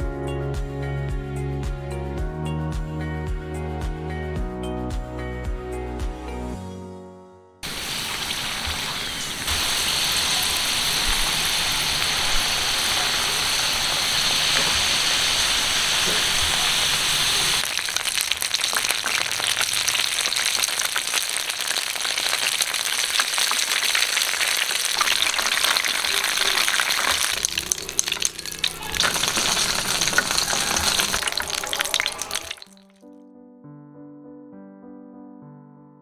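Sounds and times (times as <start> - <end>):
oil sizzling and popping: 7.6 - 33.0.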